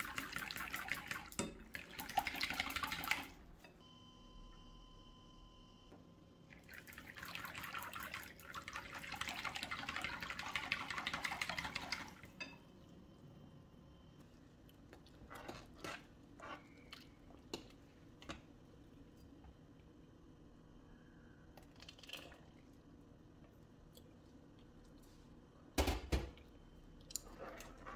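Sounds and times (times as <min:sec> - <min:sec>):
whisk beating liquid in bowl: 0:00.0 - 0:03.3, 0:07.0 - 0:12.2.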